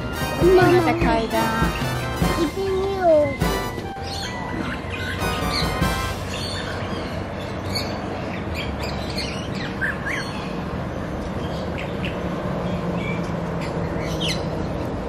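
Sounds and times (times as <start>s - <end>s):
birds squawking: 0.0s - 8.0s
birds chirping: 0.0s - 14.9s.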